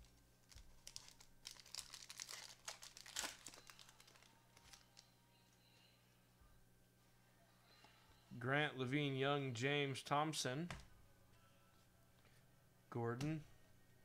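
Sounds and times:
card pack wrapper crinkling and tearing: 0.4 - 5.0.

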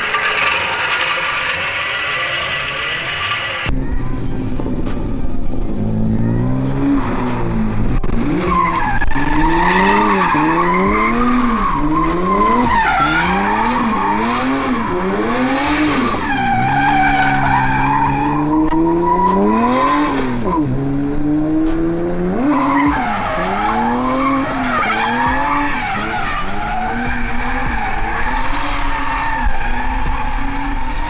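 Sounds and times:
tyres squealing: 0.0 - 3.7, 8.4 - 20.6, 22.3 - 31.0
car engine revving: 4.4 - 31.0.

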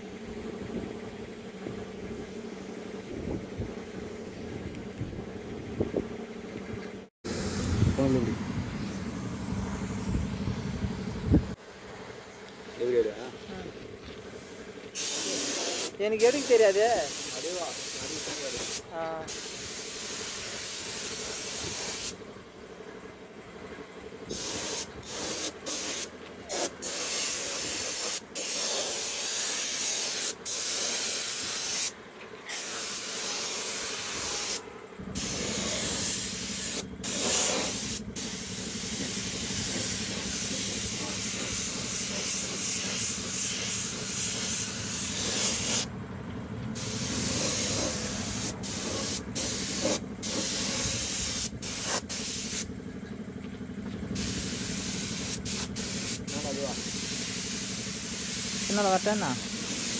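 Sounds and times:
steady low hum: 0.0 - 15.0
spray gun compressed air hiss: 9.8 - 10.4, 14.3 - 22.2, 24.3 - 31.9, 32.5 - 45.9, 46.8 - 52.7, 54.2 - 59.9.

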